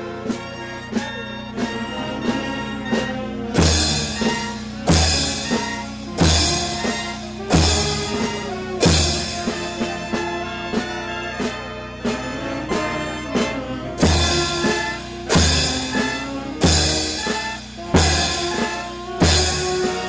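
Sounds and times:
brass band chords: 0.0 - 20.0
bass drum and cymbal strikes: 1.6 - 10.8, 14.0 - 20.0.

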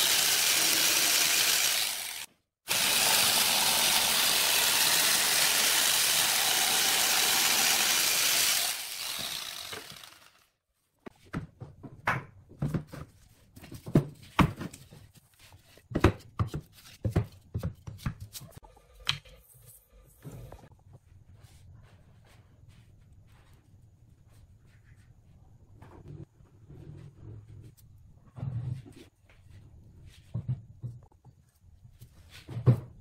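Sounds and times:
electric jigsaw cutting wood: 0.0 - 10.6.

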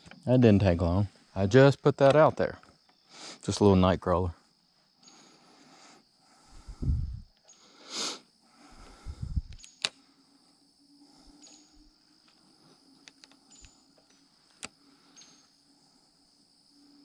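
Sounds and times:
high-pitched insect buzz: 4.6 - 17.0
sharp clicks: 9.5 - 10.0.

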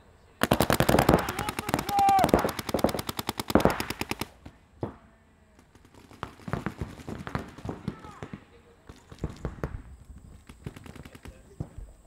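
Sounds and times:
paintball markers rapid firing: 0.4 - 4.6, 5.6 - 11.8
scattered pops: 0.4 - 5.0.

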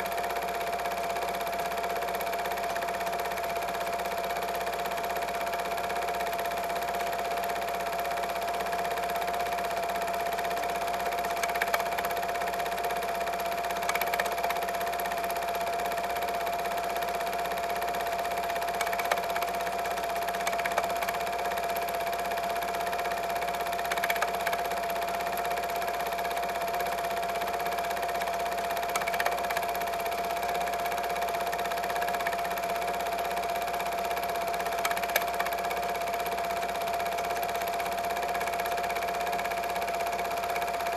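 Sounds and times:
film projector motor hum: 0.0 - 40.9
faint projector clicks: 10.4 - 14.8, 18.1 - 21.7, 23.6 - 25.1, 28.8 - 30.1, 34.0 - 40.9.

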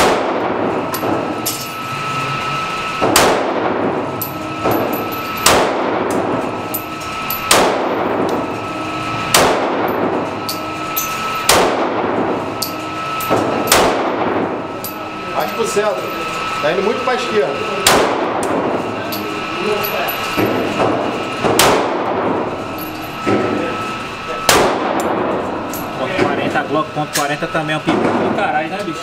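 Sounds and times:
pistol shots echoing indoors: 0.0 - 1.5, 3.0 - 4.0, 4.6 - 6.3, 7.4 - 8.4, 9.3 - 10.8, 11.4 - 14.5, 17.8 - 18.8, 20.4 - 22.5, 24.4 - 25.4.

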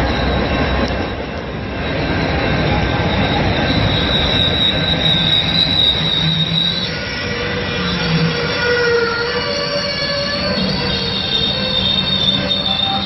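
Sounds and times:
high metal wheel squeal: 0.0 - 13.0
train rumbling past: 0.0 - 13.0.

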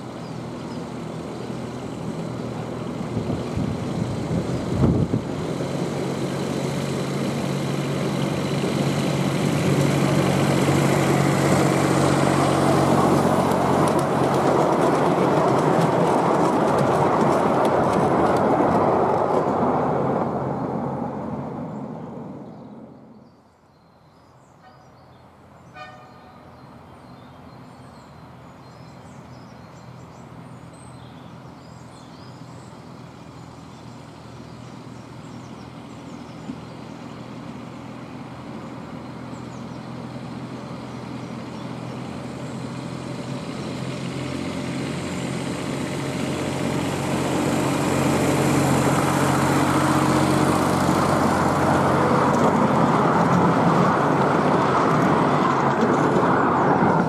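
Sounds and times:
miniature locomotive engine: 0.0 - 19.8, 37.3 - 57.0
locomotive horn toot: 24.6 - 25.0, 25.7 - 26.5.

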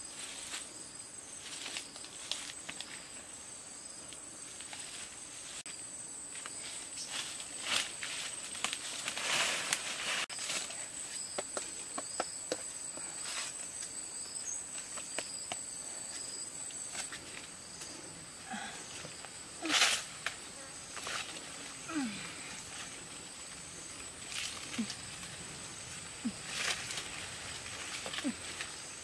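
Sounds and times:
leaves rustling: 0.0 - 12.0, 12.6 - 29.0
twigs crackling: 6.4 - 12.0, 19.2 - 29.0.

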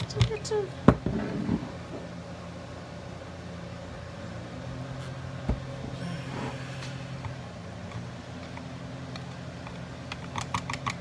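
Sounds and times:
low hum: 1.4 - 9.8.

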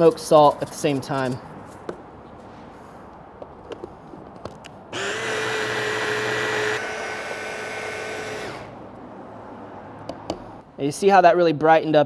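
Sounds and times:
hand blender motor whirring: 5.0 - 8.8.

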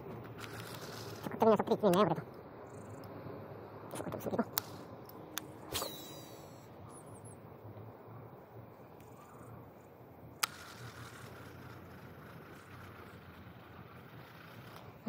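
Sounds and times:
low outdoor rumble: 0.0 - 15.0
sharp click: 4.5 - 6.5.

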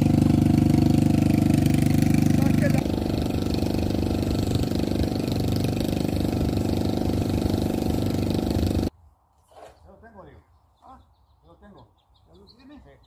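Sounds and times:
engine low rumble: 0.0 - 8.9.

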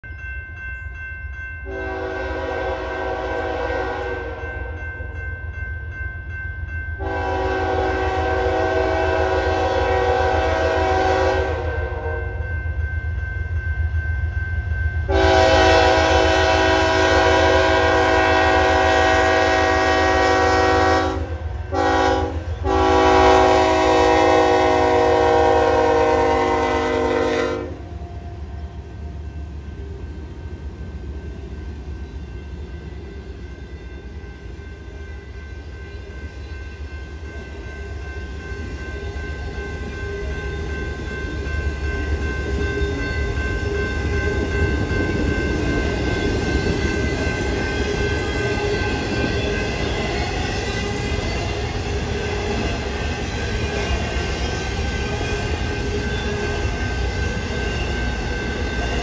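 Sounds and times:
train rumble: 0.1 - 59.0
locomotive air horn blasts: 1.7 - 4.7, 7.0 - 12.4, 15.1 - 27.9.

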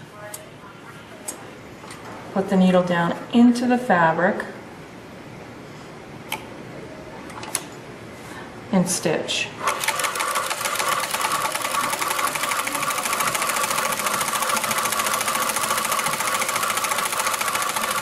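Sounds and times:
sewing machine running: 9.6 - 18.0.

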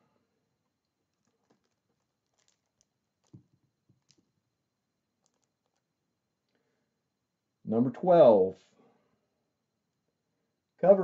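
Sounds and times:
plastic bag rustling: 1.1 - 4.4, 5.2 - 5.8.

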